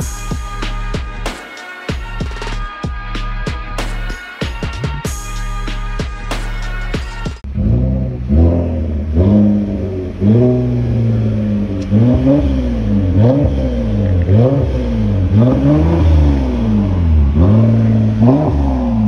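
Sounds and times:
car engine revving: 0:07.4 - 0:19.0.

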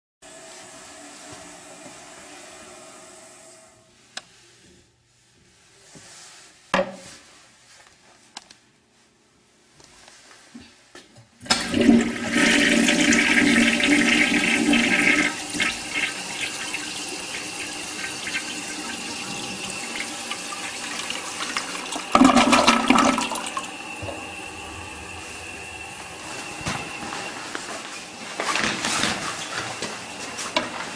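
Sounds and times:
toilet flushing water rush: 0:00.3 - 0:03.8, 0:11.4 - 0:27.7.

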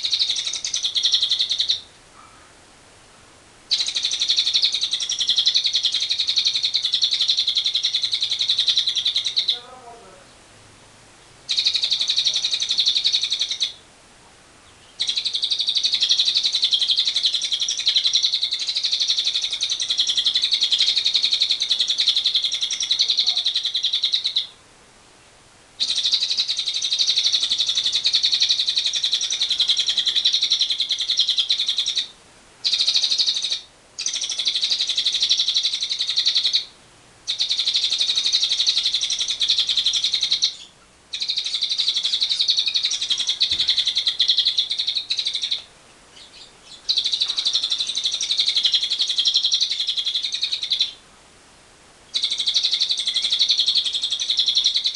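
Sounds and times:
lovebird rapid rattling chatter: 0:03.7 - 0:10.0, 0:11.5 - 0:13.7, 0:15.0 - 0:24.4, 0:25.8 - 0:36.7, 0:37.3 - 0:45.7, 0:46.8 - 0:50.9.

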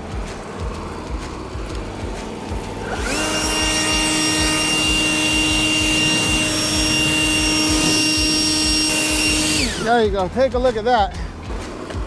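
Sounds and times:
leaf blower whining: 0:00.0 - 0:12.0.

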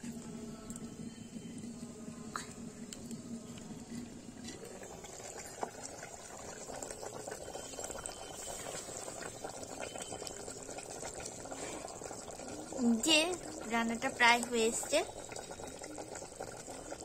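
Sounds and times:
curry bubbling and popping: 0:00.0 - 0:17.0.

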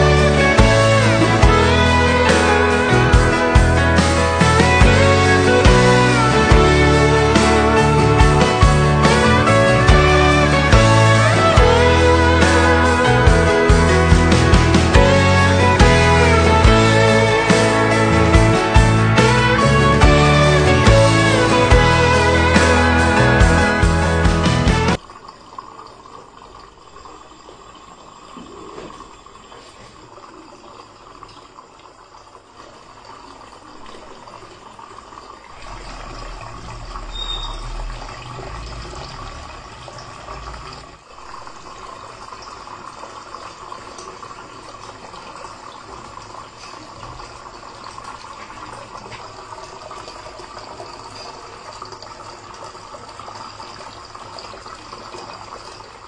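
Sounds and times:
low rumble: 0:35.5 - 0:40.9.

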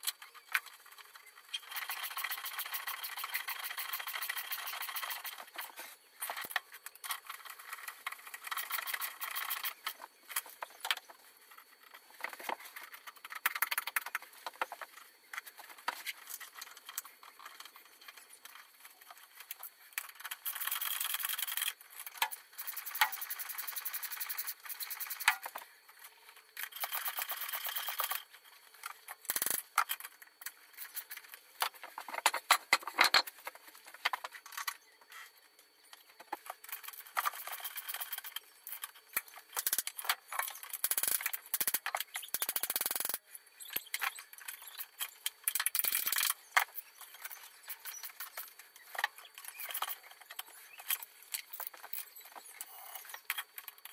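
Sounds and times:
ratchet wrench clicking: 0:01.6 - 0:05.5, 0:20.0 - 0:25.4, 0:26.6 - 0:28.2, 0:29.3 - 0:30.1, 0:39.5 - 0:43.2, 0:45.0 - 0:46.4.

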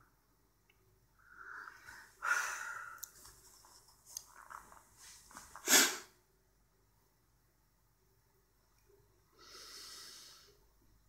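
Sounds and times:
person breathing: 0:01.2 - 0:03.2, 0:09.3 - 0:10.7.

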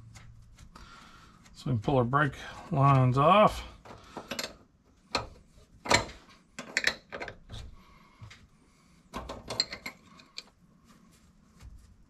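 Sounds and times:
wrench clinking on metal fittings: 0:09.4 - 0:10.4.

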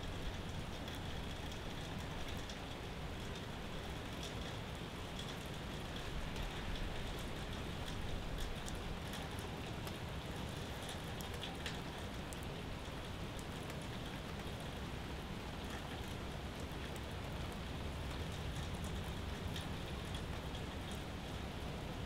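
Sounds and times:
steady rain falling: 0:00.0 - 0:22.0.

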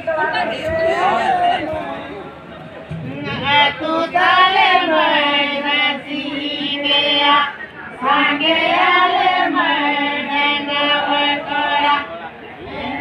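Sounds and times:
group singing long held notes: 0:02.9 - 0:13.0.

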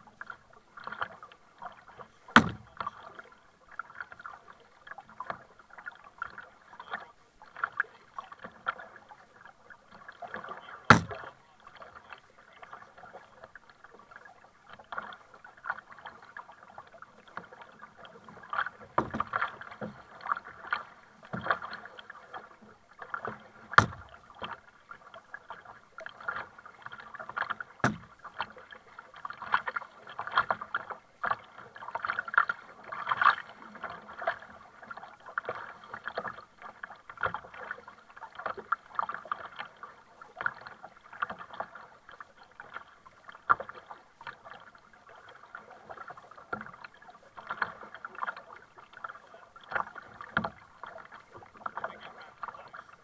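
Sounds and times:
paddle splashing water: 0:00.0 - 0:53.0
water sloshing against hull: 0:00.0 - 0:53.0
sharp knocks: 0:02.4 - 0:02.7, 0:10.9 - 0:11.2, 0:23.8 - 0:24.0.

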